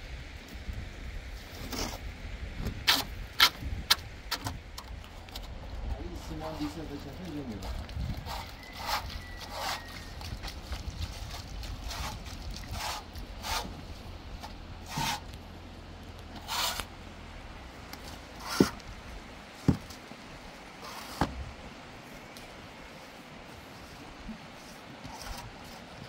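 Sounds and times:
shovel scraping wet mortar: 0:07.4 - 0:13.8, 0:14.8 - 0:15.3, 0:16.4 - 0:16.9.

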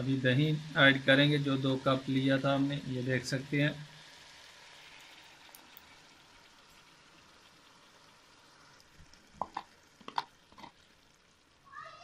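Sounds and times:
meat sizzling in a pot: 0:00.0 - 0:12.0
wooden spoon knocking: 0:09.4 - 0:10.7.

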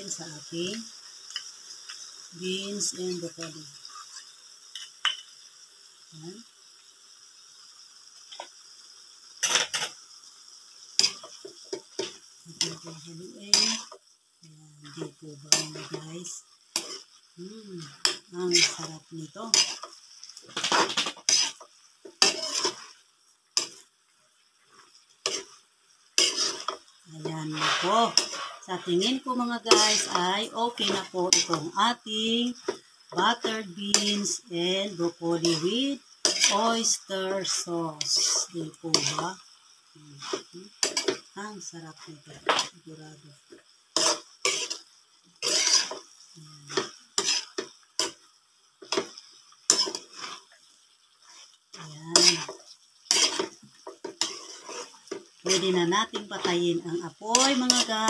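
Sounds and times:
spatula scraping a metal wok: 0:03.8 - 0:05.2, 0:09.4 - 0:10.0, 0:11.0 - 0:14.0, 0:14.9 - 0:17.2, 0:17.9 - 0:23.9, 0:24.6 - 0:39.5, 0:40.2 - 0:41.3, 0:43.5 - 0:58.0.

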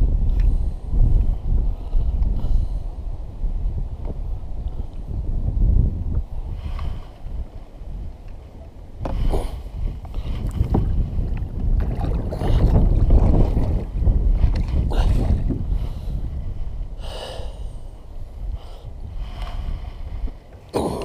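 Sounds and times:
wind rumble on microphone: 0:00.0 - 0:21.0
paddle splashing in water: 0:11.6 - 0:15.5.

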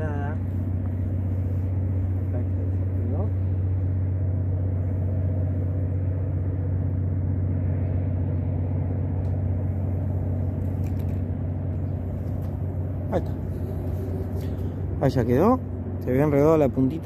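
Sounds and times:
low mechanical motor hum: 0:00.0 - 0:17.0.

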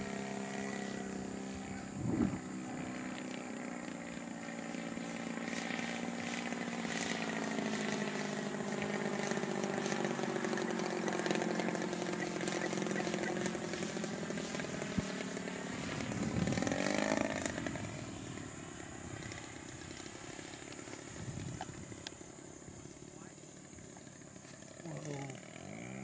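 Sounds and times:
model airplane engine overhead: 0:00.0 - 0:26.0.

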